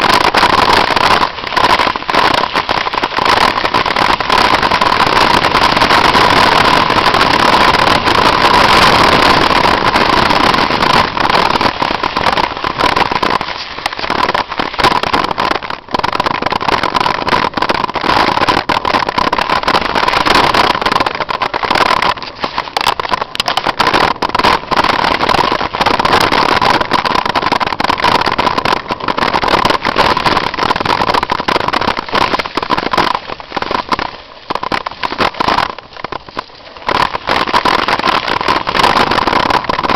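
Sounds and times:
wind rushing over microphone: 0:00.0 - 0:39.9
tyres rolling over rocky dirt: 0:17.5 - 0:39.9.

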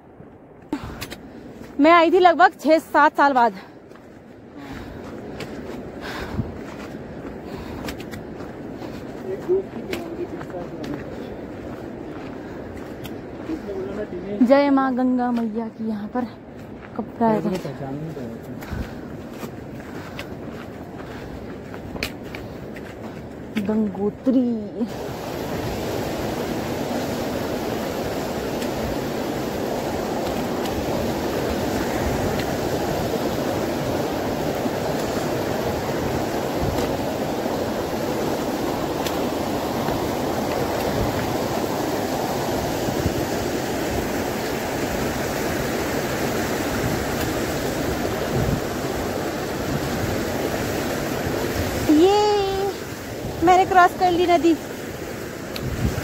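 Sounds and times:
river rushing white water: 0:24.8 - 0:56.0.

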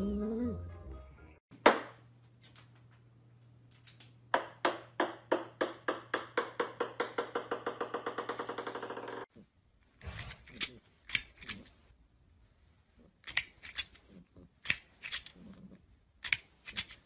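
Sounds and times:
small ball bouncing on wooden floor: 0:03.8 - 0:09.3.

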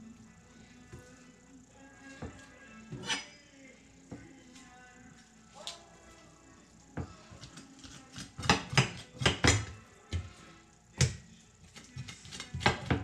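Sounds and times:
utensils and dishes clattering: 0:02.9 - 0:03.5.

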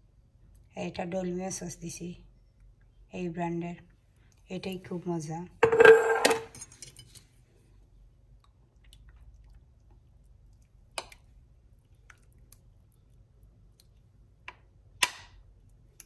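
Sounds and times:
wet squishing of sauce: 0:08.2 - 0:14.4.

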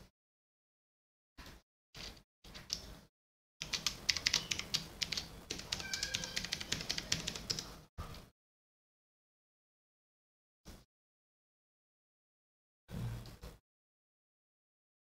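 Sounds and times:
fast typing on keyboard: 0:03.6 - 0:07.7.

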